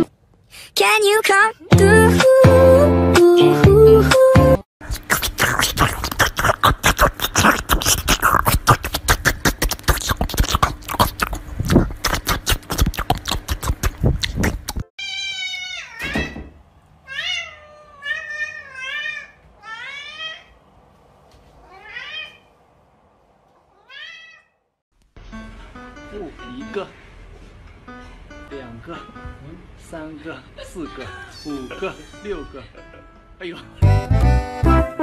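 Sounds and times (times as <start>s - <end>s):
cat meowing: 15.0s - 20.6s, 21.6s - 22.5s, 23.7s - 24.6s.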